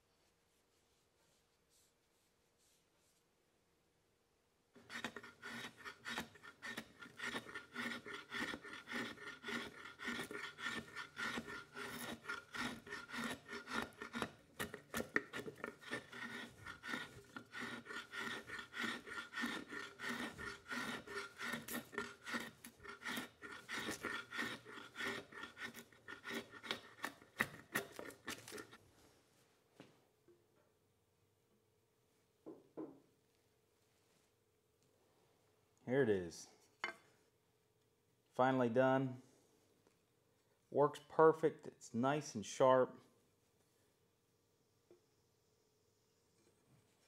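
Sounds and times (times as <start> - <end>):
draw knife shaving wood: 4.8 - 28.8.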